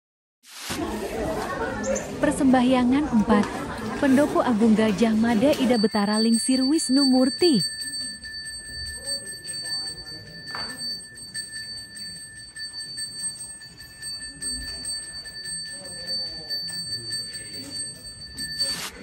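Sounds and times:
faint voices: 0:00.7 - 0:19.0
hand bell ringing: 0:05.3 - 0:19.0.

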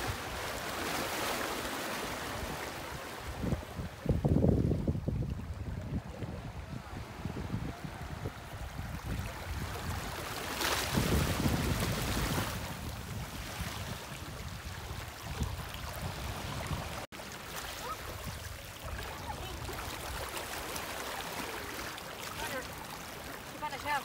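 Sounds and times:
sea water lapping: 0:00.0 - 0:24.0
wind on microphone: 0:02.2 - 0:17.1.

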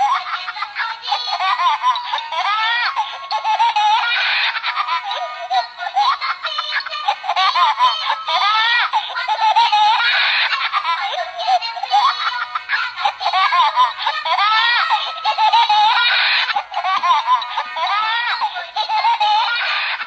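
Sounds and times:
toy doll baby laughter: 0:00.0 - 0:20.0.

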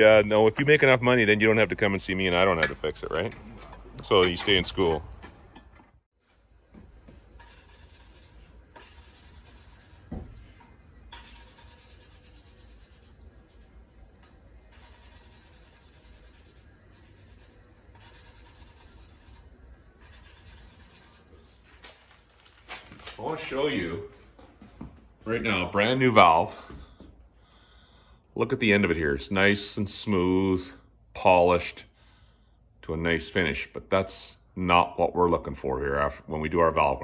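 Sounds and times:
hand rubbing on metal: 0:11.1 - 0:13.9, 0:14.6 - 0:21.6.

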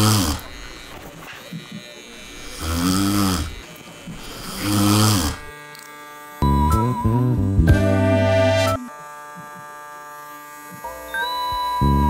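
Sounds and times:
man snoring: 0:00.0 - 0:00.8, 0:01.4 - 0:05.5
electric hair clippers buzzing: 0:00.0 - 0:12.0.

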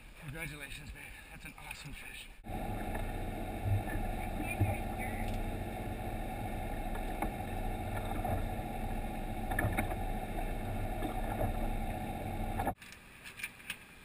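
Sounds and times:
boat engine rumble: 0:02.4 - 0:12.8.

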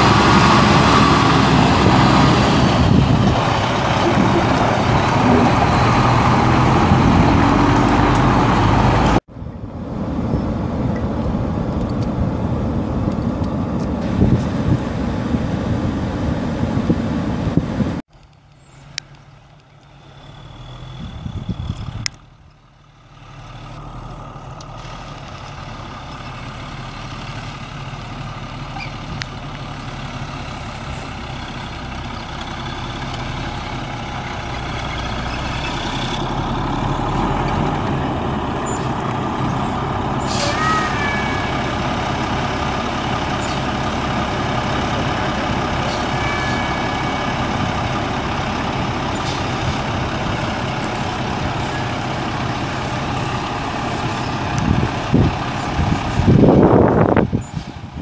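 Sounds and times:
diesel truck engine running: 0:00.0 - 0:58.0
brief squeak: 0:28.8 - 0:29.0, 0:45.9 - 0:47.2.

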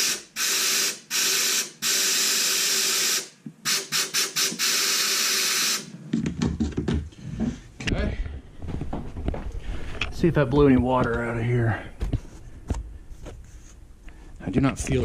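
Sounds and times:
knocks and handling noise: 0:06.0 - 0:11.3, 0:12.0 - 0:15.0.

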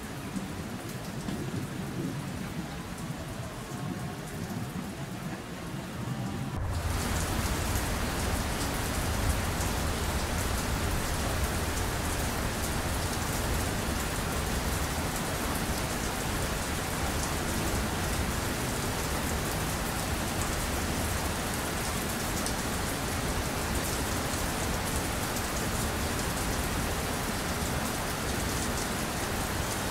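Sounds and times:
steady rain: 0:00.0 - 0:29.9
low rumble: 0:05.9 - 0:13.6.

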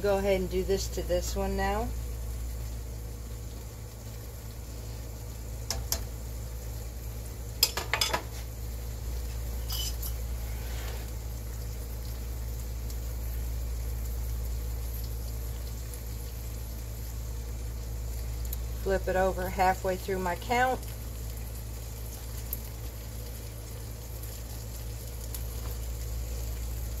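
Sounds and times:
steady low hum: 0:00.0 - 0:27.0
metal utensil clinking on pot: 0:07.6 - 0:08.3, 0:09.6 - 0:10.2.

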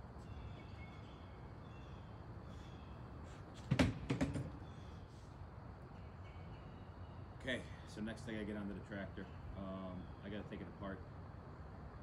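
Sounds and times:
faint bird chirps: 0:00.2 - 0:03.4, 0:05.9 - 0:08.1, 0:09.1 - 0:10.6.

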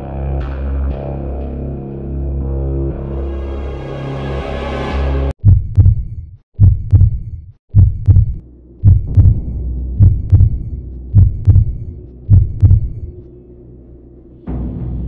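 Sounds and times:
heartbeat double thump: 0:05.4 - 0:13.1.

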